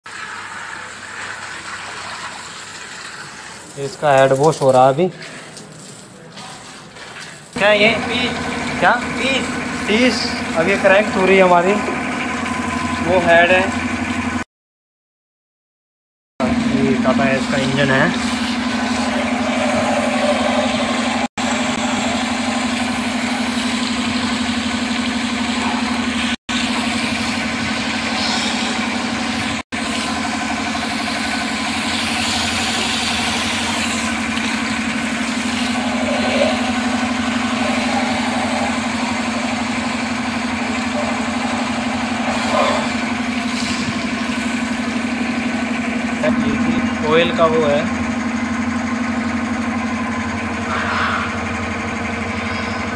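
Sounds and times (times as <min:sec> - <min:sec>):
water jet hissing on metal: 0:00.1 - 0:12.0, 0:16.7 - 0:24.6, 0:25.5 - 0:45.7
pressure washer pump humming: 0:00.1 - 0:14.4, 0:16.4 - 0:52.9.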